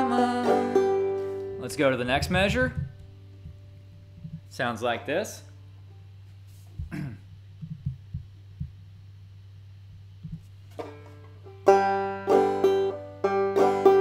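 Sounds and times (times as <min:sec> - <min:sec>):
banjo plucked notes: 0:00.0 - 0:03.6, 0:10.7 - 0:14.0
low steady hum: 0:00.0 - 0:14.0
soft knocks: 0:06.7 - 0:08.8.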